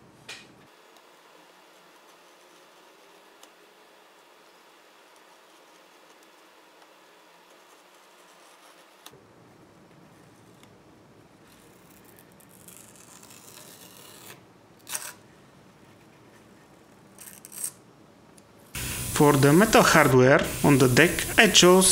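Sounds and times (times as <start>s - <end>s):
blade scraping masking tape: 11.5s - 15.2s, 17.1s - 17.8s.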